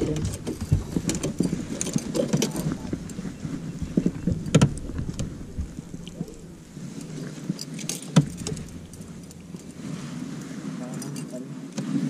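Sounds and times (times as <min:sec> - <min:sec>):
metal clinks and knocks: 0:00.0 - 0:03.2, 0:07.0 - 0:09.7
chain rattling against boat: 0:00.0 - 0:11.5.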